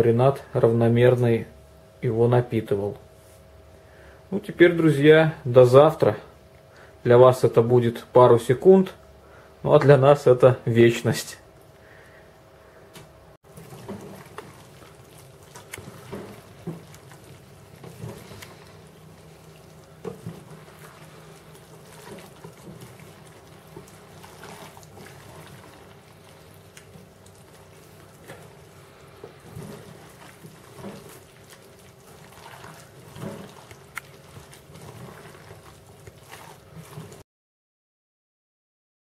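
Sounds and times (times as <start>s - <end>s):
hands squelching wet meat: 13.5s - 37.2s.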